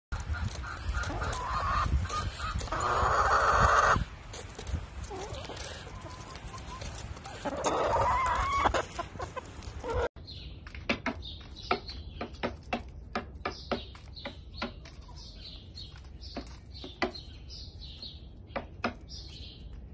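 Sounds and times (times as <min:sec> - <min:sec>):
hens clucking: 0:00.1 - 0:10.2
hens pecking taps: 0:00.2 - 0:10.0, 0:10.6 - 0:15.2, 0:15.9 - 0:17.4
hen squawking: 0:07.3 - 0:10.1.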